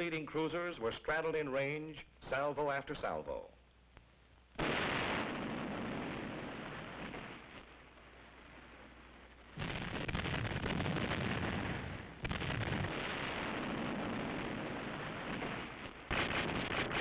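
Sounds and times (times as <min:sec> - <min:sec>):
naval gun blasts: 0:04.6 - 0:07.7, 0:09.6 - 0:17.0.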